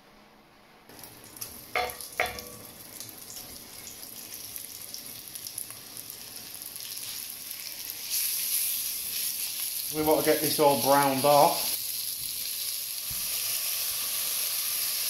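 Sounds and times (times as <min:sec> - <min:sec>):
meat sizzling in hot oil: 0:00.9 - 0:15.0
sharp knocks: 0:01.8 - 0:02.6.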